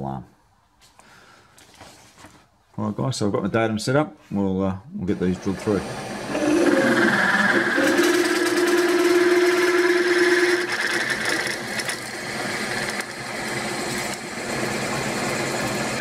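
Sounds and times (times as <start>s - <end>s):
milling machine drilling metal: 5.4s - 16.0s.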